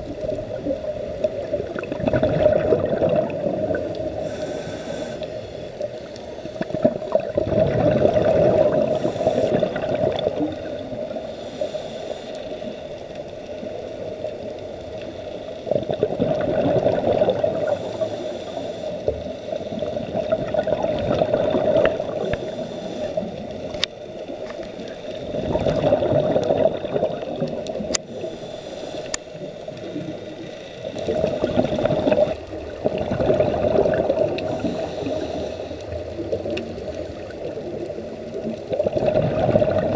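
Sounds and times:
exhaled bubbles gurgling: 0.0 - 39.9
regulator inhale hiss: 3.9 - 6.8, 8.7 - 9.8, 11.0 - 13.1, 17.5 - 19.7, 22.0 - 25.2, 27.8 - 29.9, 34.3 - 38.1.

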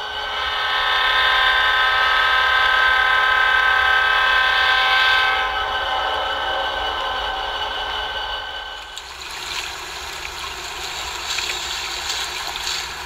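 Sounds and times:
locomotive air horn blast: 0.3 - 6.1.

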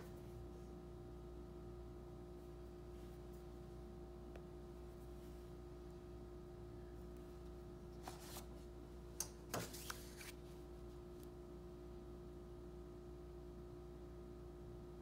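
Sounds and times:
steady low hum: 0.0 - 15.0
pencil handling rustle: 9.5 - 10.4.

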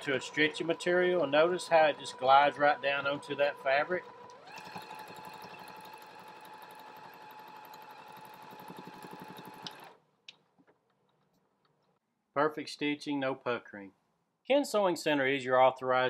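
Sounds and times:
sewing machine stitching: 0.0 - 10.0.

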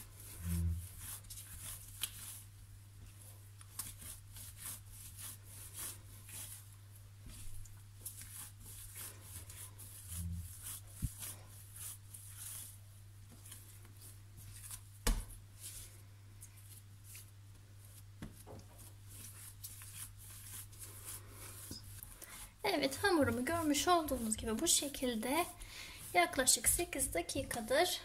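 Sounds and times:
steady low hum: 0.0 - 1.9, 4.9 - 14.7
hands kneading sticky dough: 0.0 - 28.0.

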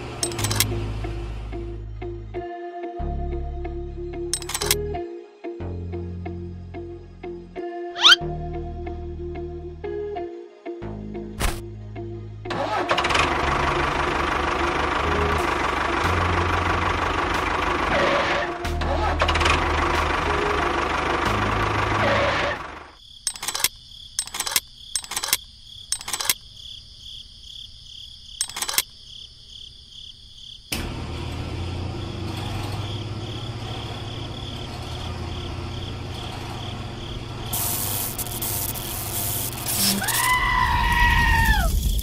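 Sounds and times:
plastic parts clicking: 4.4 - 4.8, 23.3 - 26.4, 28.4 - 28.9
insect-like chirring: 8.0 - 8.2, 22.9 - 30.7, 32.8 - 42.0
small electric toy motor running: 37.5 - 40.2.

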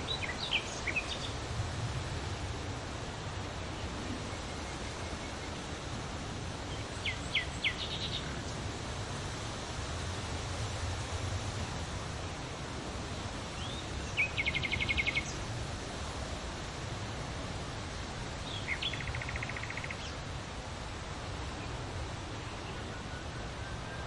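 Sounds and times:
bird trilling song: 13.6 - 15.4, 18.5 - 20.2.

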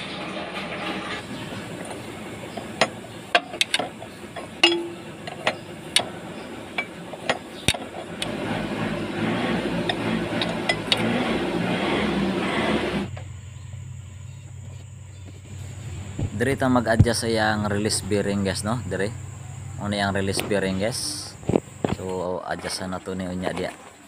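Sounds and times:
hand tools clinking on metal: 1.8 - 6.1
steady low rumble: 12.8 - 22.0.

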